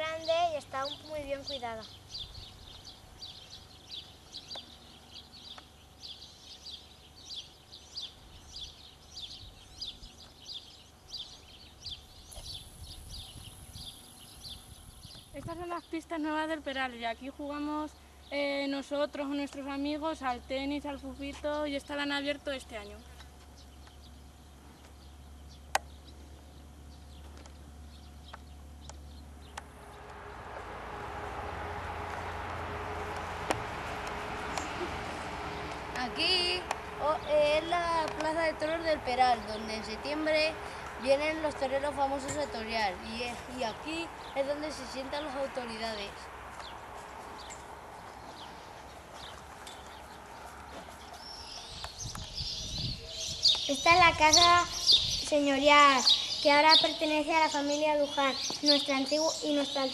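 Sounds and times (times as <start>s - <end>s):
small birds chirping: 0.0s - 30.2s, 32.7s - 59.9s
steady low hum: 0.0s - 59.9s
low rumble: 28.6s - 53.4s.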